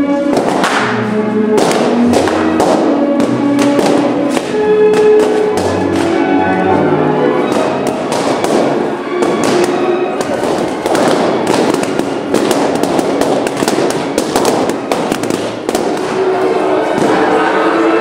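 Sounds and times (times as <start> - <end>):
fireworks crackling and popping: 1.6 - 6.2, 7.4 - 16.4.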